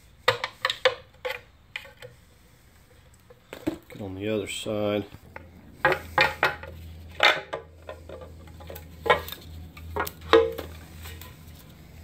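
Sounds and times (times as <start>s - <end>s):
steady low hum: 1.1s - 12.0s
metal clanks and knocks: 5.2s - 11.5s.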